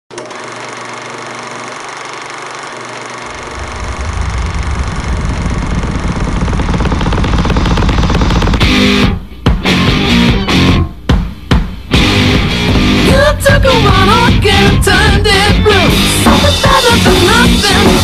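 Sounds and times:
gritty noise drone: 3.2 - 9.2
deep low rumble: 3.3 - 8.7.

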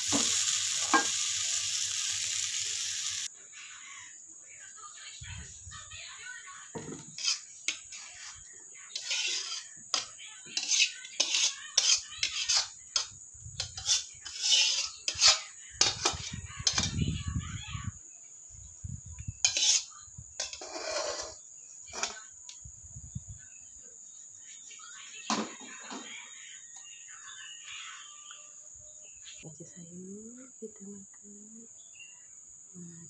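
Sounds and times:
utensil scraping a wok: 0.0 - 3.3, 6.9 - 17.0, 19.2 - 22.2.

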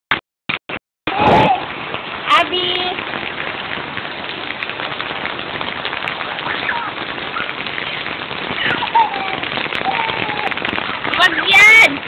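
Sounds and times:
rain on concrete: 0.5 - 12.0.

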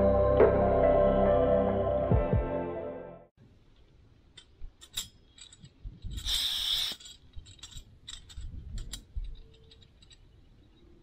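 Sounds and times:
small metal mechanism clicking: 4.3 - 11.0.

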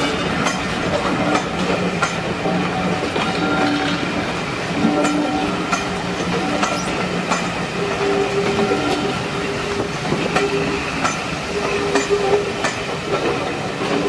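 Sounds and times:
train wheels clicking over rail joints: 0.0 - 14.0
train wheels squealing: 2.6 - 4.1, 5.0 - 12.9.

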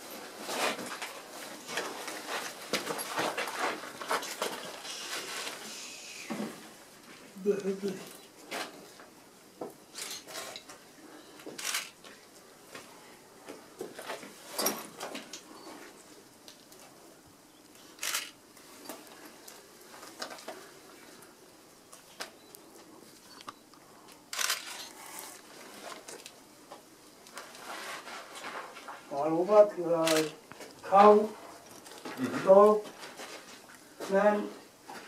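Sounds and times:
short rustles and knocks: 0.0 - 5.6.

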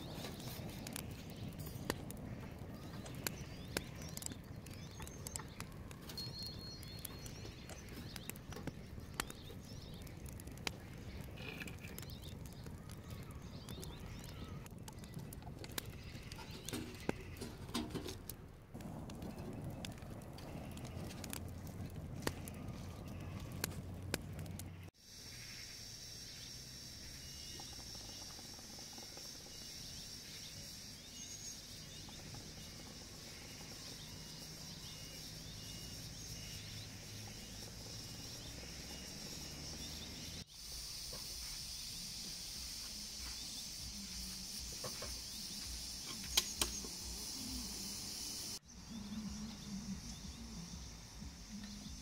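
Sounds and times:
faint hiss: 25.0 - 52.0
insect drone: 25.0 - 52.0.

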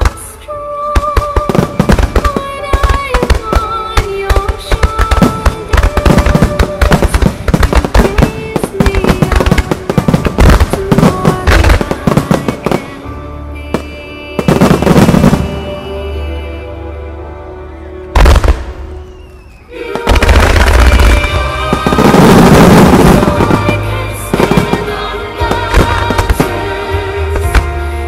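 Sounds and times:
music playing: 0.0 - 28.0
firework bursts: 0.9 - 13.0, 18.2 - 27.7.

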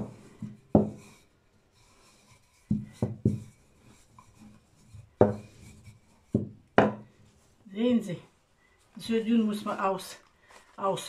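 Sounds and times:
rolling pin rolling dough: 0.0 - 7.2.

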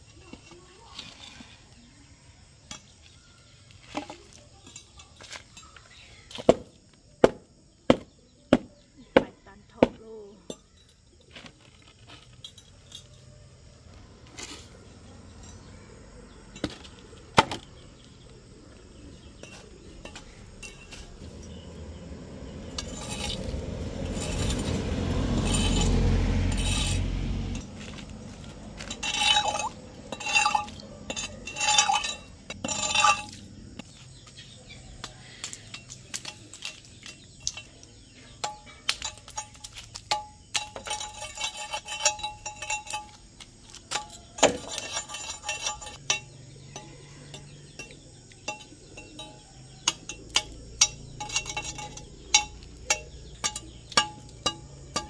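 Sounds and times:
crowbar scraping on concrete: 0.1 - 1.9, 22.5 - 34.5, 35.6 - 55.0
sharp metallic clinks: 2.6 - 6.8, 10.1 - 13.6, 14.5 - 18.4, 19.0 - 55.0.

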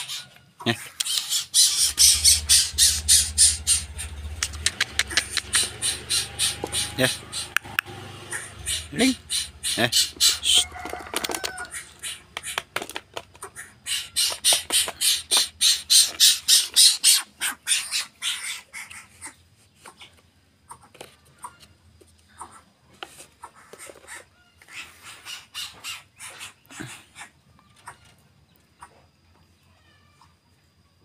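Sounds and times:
bird making sharp harsh clicks: 0.8 - 10.7, 11.3 - 18.6.

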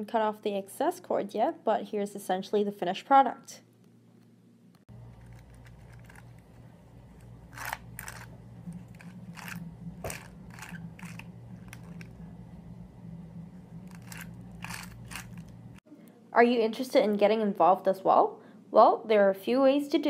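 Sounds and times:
steady low hum: 3.6 - 16.4.

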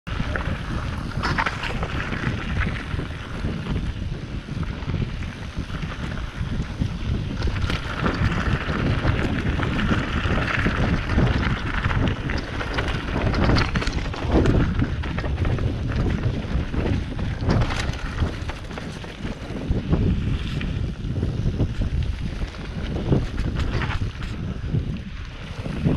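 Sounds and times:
bike rattling and knocking: 0.1 - 25.9
tyres rumbling on gravel: 0.1 - 25.9
wind rushing over microphone: 0.1 - 25.9.

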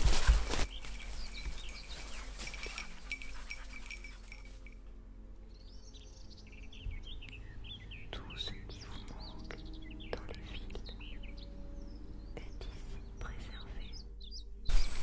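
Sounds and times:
songbird chirping: 0.0 - 15.0
dog collar bell jingling: 1.0 - 4.9.

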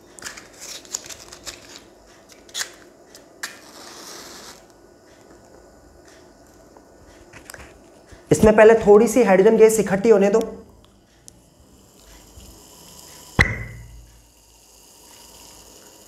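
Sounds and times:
match striking and flaring: 3.4 - 4.6.

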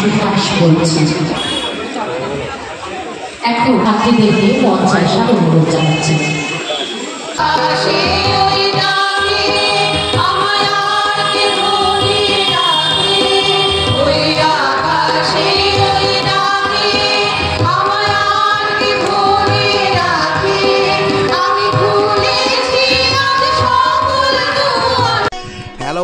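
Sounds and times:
women singing together: 7.4 - 25.3.

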